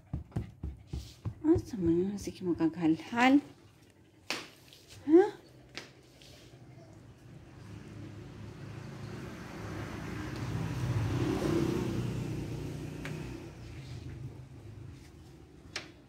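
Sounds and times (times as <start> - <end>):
vehicle driving past: 6.2 - 15.7.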